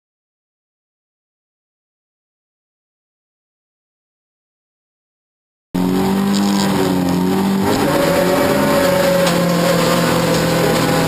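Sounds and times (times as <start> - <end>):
car engine at high revs: 5.8 - 11.0.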